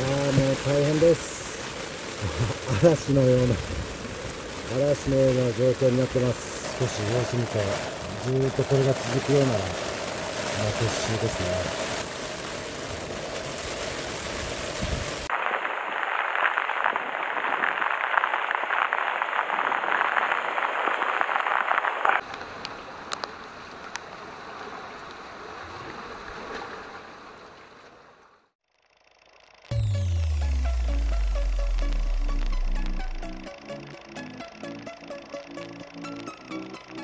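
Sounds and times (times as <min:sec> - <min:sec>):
heavy rain: 0:00.0 - 0:24.0, 0:29.7 - 0:34.6
surf on rocky shore: 0:00.0 - 0:27.5
raindrops hitting near microphone: 0:00.0 - 0:28.5, 0:29.5 - 0:37.0.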